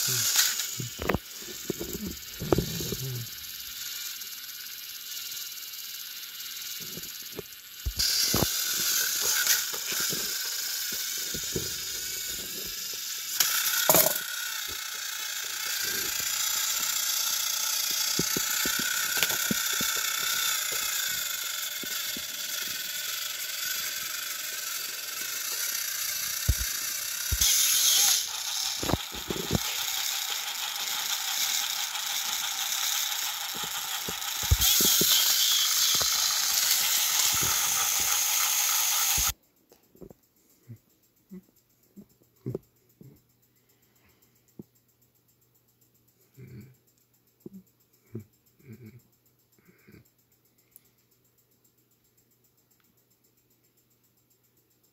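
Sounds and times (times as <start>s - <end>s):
toys clicking and knocking: 0.0s - 43.3s
toy train motors whirring: 0.0s - 54.9s.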